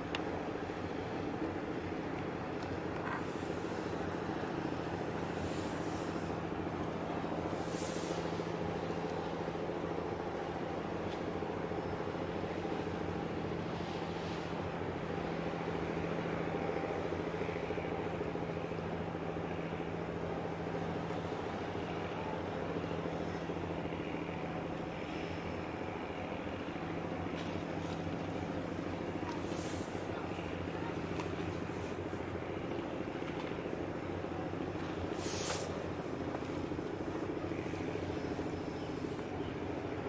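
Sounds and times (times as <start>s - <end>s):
engine droning: 0.0s - 40.0s.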